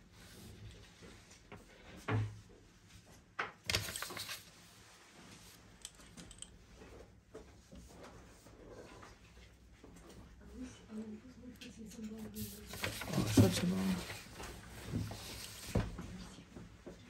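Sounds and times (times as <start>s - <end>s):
paper sliding and rustling: 3.7s - 4.8s, 12.3s - 15.8s.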